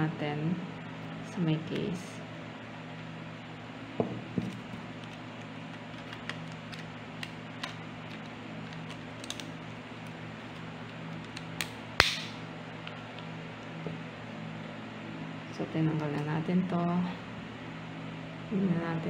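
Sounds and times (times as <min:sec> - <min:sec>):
steady low hum: 0:00.0 - 0:19.0
plastic clicks and handling: 0:04.5 - 0:10.6
sharp plastic snap: 0:11.2 - 0:12.4.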